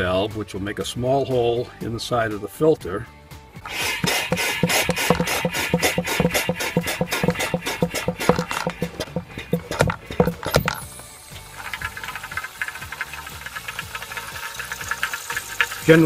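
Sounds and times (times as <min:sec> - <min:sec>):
hand pump plunger clacking: 0:03.6 - 0:10.9.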